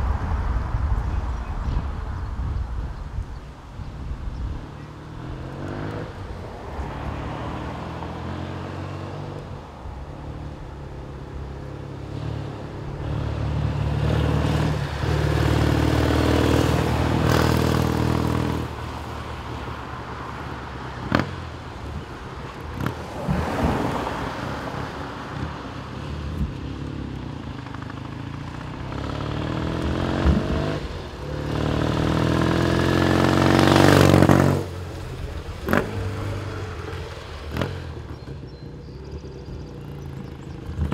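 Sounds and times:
motorcycle engine running: 26.0s - 40.9s.

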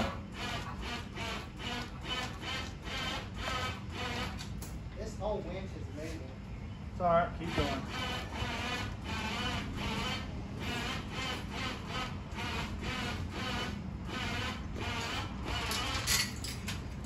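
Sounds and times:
electric winch squeaking whine: 0.0s - 4.5s, 7.4s - 16.5s.

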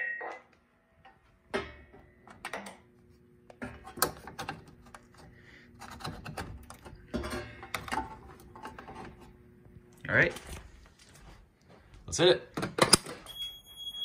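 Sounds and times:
faint steady hum: 0.0s - 12.2s.

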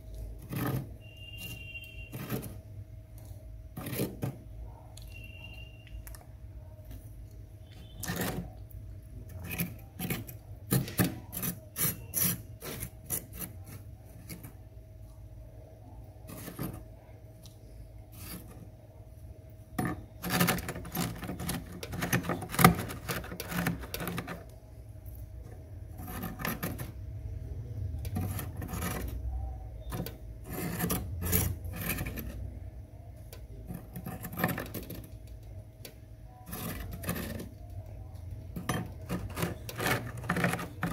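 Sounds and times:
fork scraping frost: 0.4s - 2.6s, 3.8s - 4.4s, 9.3s - 14.5s, 16.2s - 16.8s, 18.1s - 18.6s, 20.2s - 24.4s, 25.9s - 26.9s, 28.2s - 29.2s, 29.8s - 32.4s, 36.4s - 37.5s, 38.6s - 40.9s.

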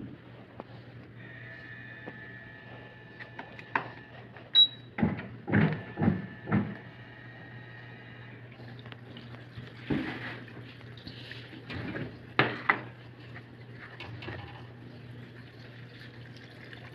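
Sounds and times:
high electronic beep: 4.6s - 4.9s
plastic clunks and knocks: 5.0s - 6.8s.

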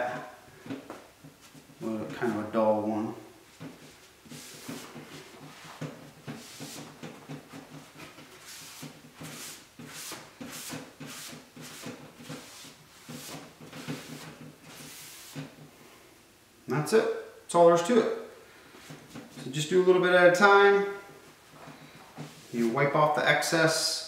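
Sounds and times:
cloth rag swishing on wood: 1.3s - 2.6s, 3.4s - 15.6s, 21.5s - 23.0s.

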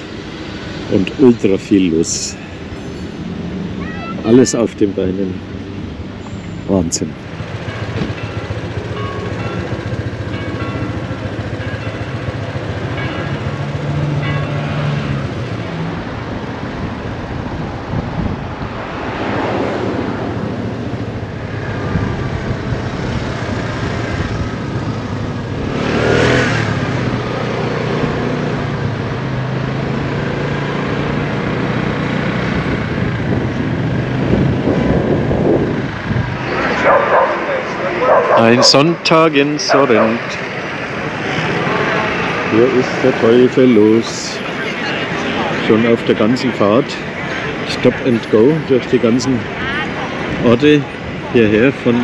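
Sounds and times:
wind and road noise: 0.0s - 52.0s
scooter engine running: 7.4s - 14.0s, 30.7s - 38.7s.

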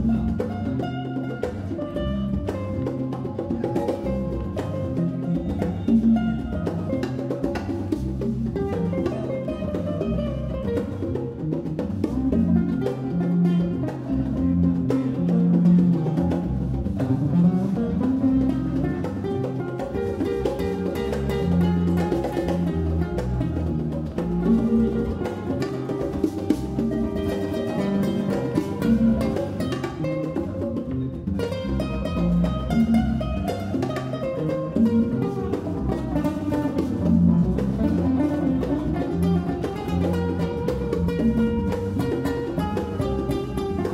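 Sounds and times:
acoustic guitar: 0.0s - 43.9s
bass guitar line: 0.0s - 43.9s
congas: 0.0s - 43.9s.

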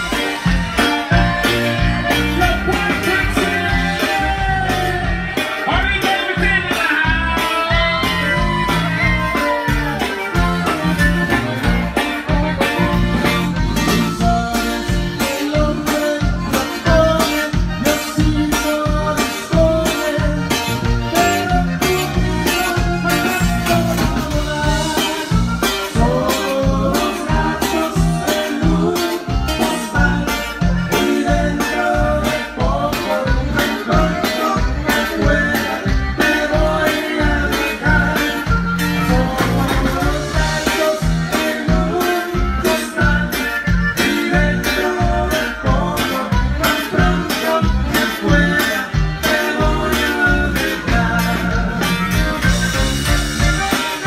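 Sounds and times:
button accordion: 0.0s - 54.0s
drums with steady beat: 0.0s - 54.0s
live band playing dance song: 0.0s - 54.0s
twelve-string guitar: 0.0s - 54.0s
person singing: 13.8s - 52.0s.

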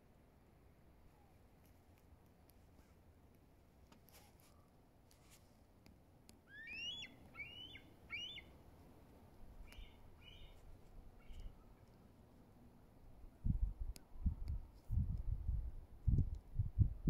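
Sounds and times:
eagle whistled calls: 6.5s - 8.5s.

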